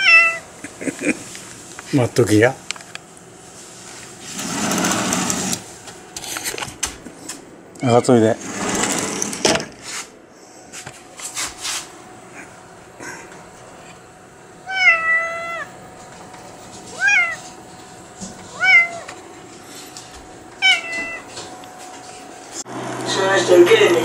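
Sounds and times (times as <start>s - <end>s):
cat meowing: 0.0s - 0.4s, 14.6s - 15.7s, 16.9s - 17.5s, 18.5s - 19.1s, 20.6s - 21.3s.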